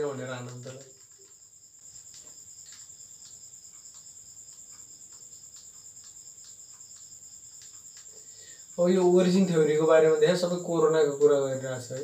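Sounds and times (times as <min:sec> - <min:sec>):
high-pitched insect trill: 0:00.0 - 0:12.0
soft clicks: 0:00.1 - 0:08.8.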